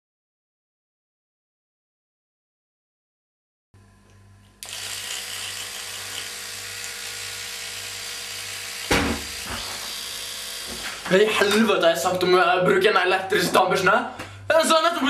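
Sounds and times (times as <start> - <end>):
electric toothbrush buzzing: 4.5 - 11.6
brief thump: 8.9 - 9.7.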